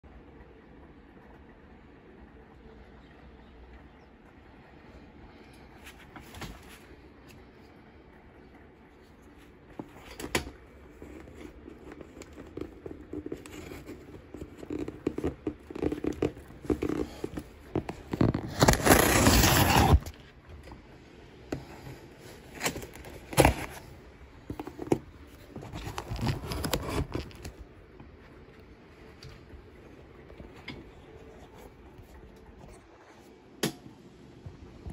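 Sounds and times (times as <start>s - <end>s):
cardboard box scraping and rustling: 9.8s - 20.2s, 21.5s - 27.6s.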